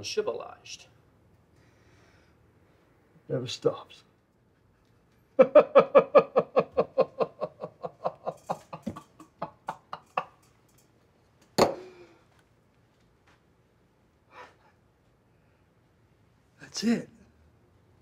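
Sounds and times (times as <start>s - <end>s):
man laughing hard: 5.4s - 10.4s.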